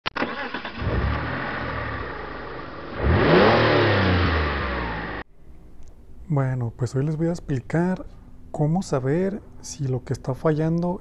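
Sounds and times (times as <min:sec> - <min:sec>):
car engine revving: 0:00.2 - 0:05.2.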